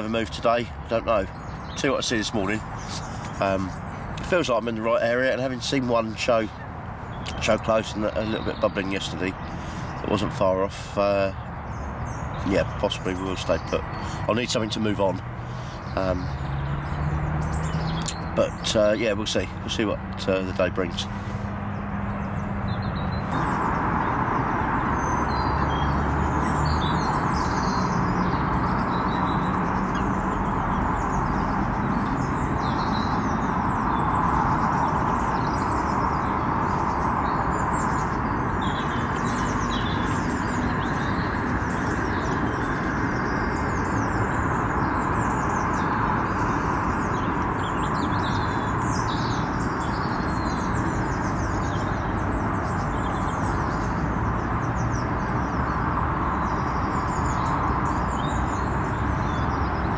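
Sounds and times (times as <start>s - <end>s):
small birds chirping: 0.0s - 59.9s
steady rushing noise: 17.1s - 59.9s.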